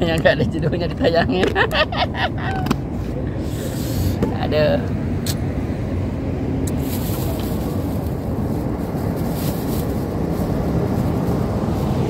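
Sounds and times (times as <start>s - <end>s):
low rumbling background noise: 0.0s - 12.0s.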